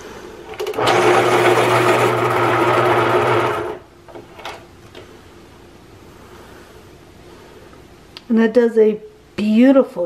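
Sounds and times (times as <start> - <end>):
electric pencil sharpener grinding: 0.6 - 3.9.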